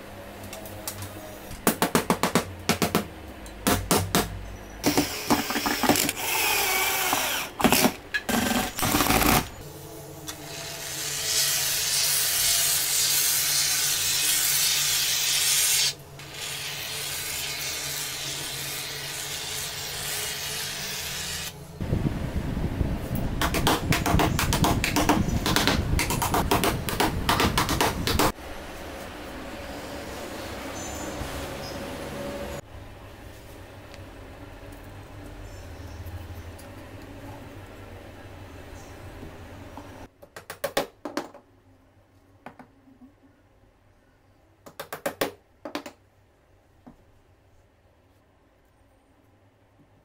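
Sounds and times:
hammer driving nails into board: 23.4s - 28.3s.

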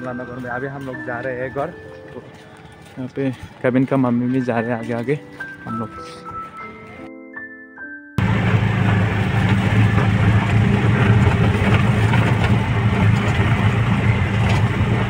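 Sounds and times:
road noise: 0.0s - 7.1s, 8.2s - 15.0s
music: 0.0s - 8.2s
auto-rickshaw engine running: 8.2s - 15.0s.

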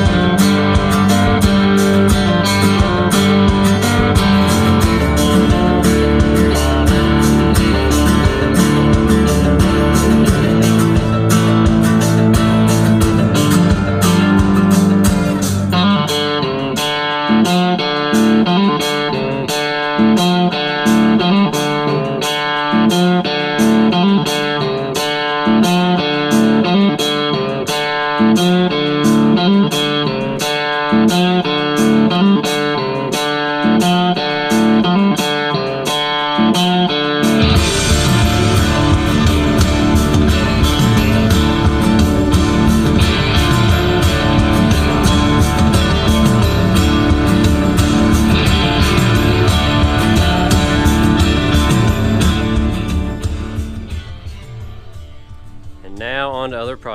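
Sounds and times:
heavy bass: 0.0s - 16.6s, 37.3s - 56.9s
guitar music over speakers: 0.0s - 56.9s.

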